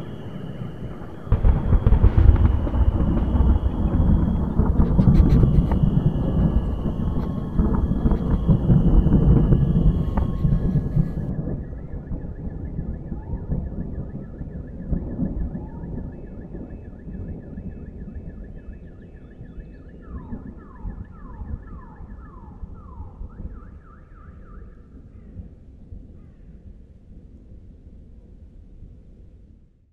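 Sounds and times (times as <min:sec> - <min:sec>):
low rumble: 0:00.0 - 0:13.1
distant electronic alarm: 0:00.0 - 0:24.9.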